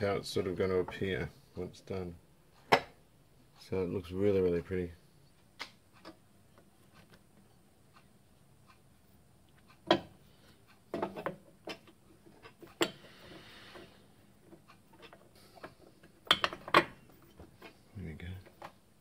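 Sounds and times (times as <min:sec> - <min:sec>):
metal clicks and knocks: 0:09.7 - 0:10.2, 0:10.9 - 0:13.1, 0:14.4 - 0:17.8.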